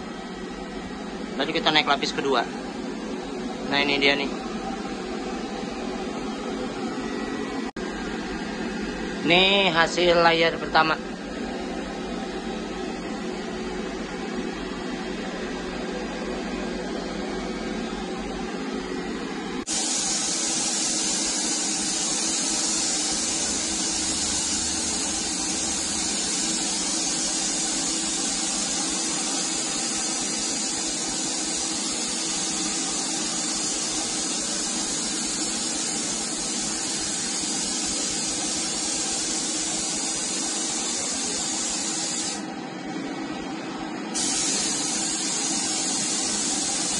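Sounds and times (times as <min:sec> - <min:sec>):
paint spray gun hissing: 0:19.7 - 0:42.5, 0:44.2 - 0:46.9.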